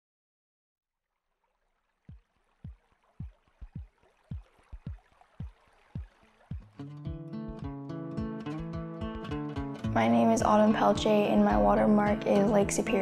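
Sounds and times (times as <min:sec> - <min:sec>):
soft low thumps dropping in pitch: 0:02.1 - 0:06.8.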